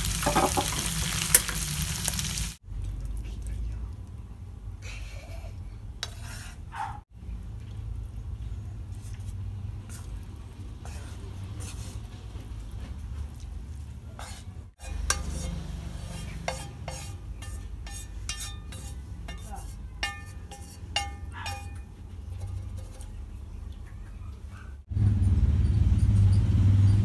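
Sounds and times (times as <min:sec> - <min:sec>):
wooden utensil scraping a frying pan: 0:00.1 - 0:02.3, 0:06.0 - 0:06.7, 0:08.8 - 0:13.4, 0:14.0 - 0:23.5.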